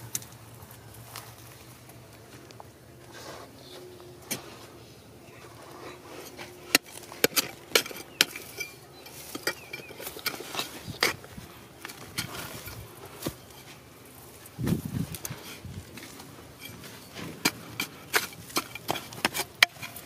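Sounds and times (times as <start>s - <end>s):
steel bar striking rock: 6.6s - 11.2s, 16.6s - 20.0s.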